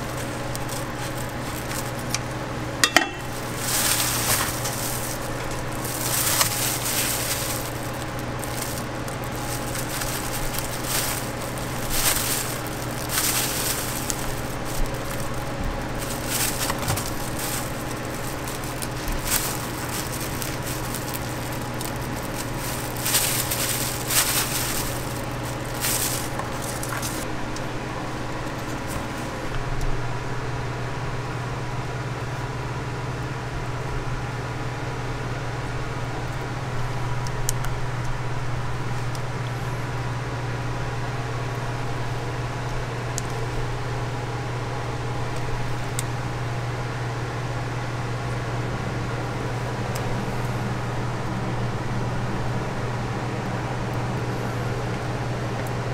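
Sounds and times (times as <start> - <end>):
plastic gloves crinkling: 0.0 - 27.3
low machine hum: 0.0 - 55.9.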